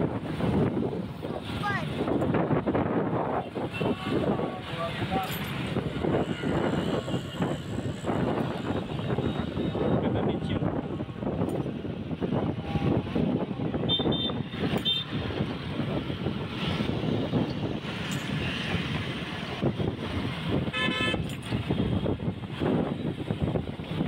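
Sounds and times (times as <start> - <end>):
road traffic rush: 0.0 - 24.0
car horn honking: 13.9 - 15.1, 20.7 - 21.3.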